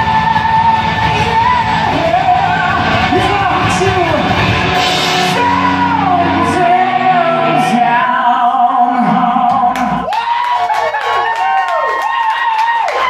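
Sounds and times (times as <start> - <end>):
electric guitars holding notes: 0.0 - 10.1
rock band playing live: 0.0 - 10.1.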